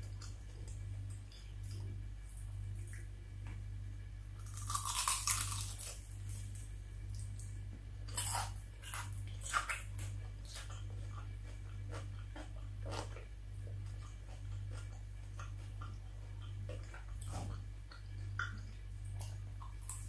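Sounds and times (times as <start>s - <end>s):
steady low hum: 0.0s - 20.0s
bite into crispy chicken skin: 4.4s - 6.6s
crisp chewing crunches: 4.4s - 20.0s.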